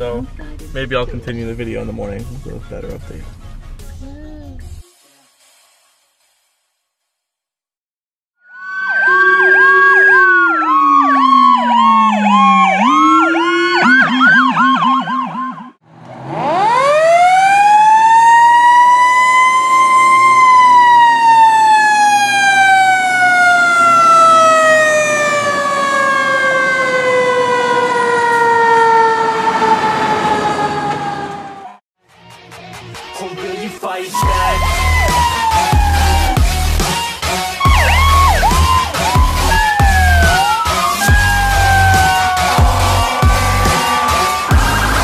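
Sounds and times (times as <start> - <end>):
electronic sirens warbling: 8.4 - 31.8, 34.2 - 36.9, 37.6 - 45.0.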